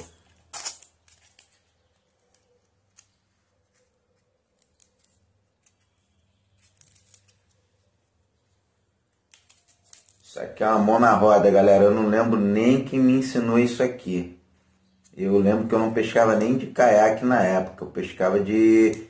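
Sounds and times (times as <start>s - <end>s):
faint handling rustles and clicks: 0.0s - 7.9s.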